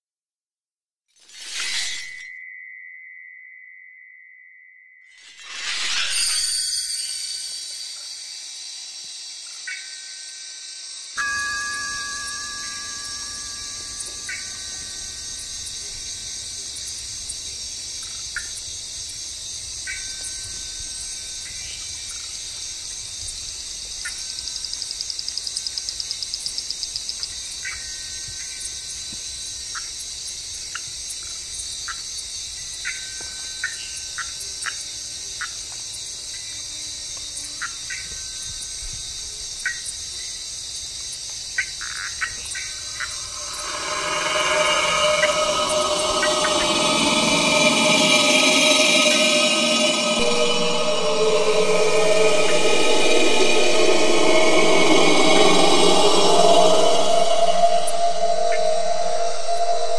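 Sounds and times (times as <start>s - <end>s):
high insect chorus: 35.7s - 59.9s
fast pulsing trill: 42.8s - 59.9s.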